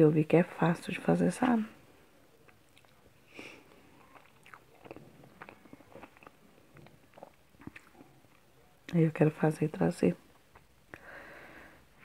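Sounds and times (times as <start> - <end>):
person chewing with wet smacks: 2.3 - 9.0, 10.3 - 11.0.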